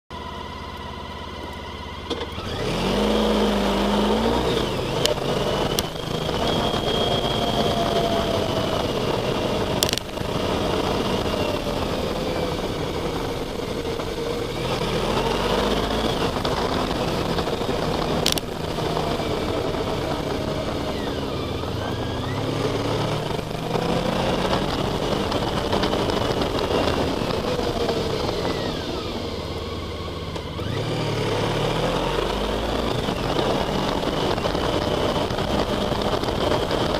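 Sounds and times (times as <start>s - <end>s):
motorcycle engine running: 0.1s - 36.9s
wind and road noise: 0.1s - 36.9s
sharp clicks: 9.7s - 10.4s, 16.1s - 19.0s.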